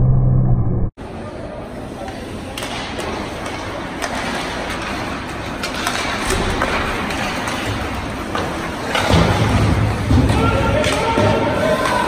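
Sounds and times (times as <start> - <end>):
hockey sticks and puck knocking: 2.6 - 12.0.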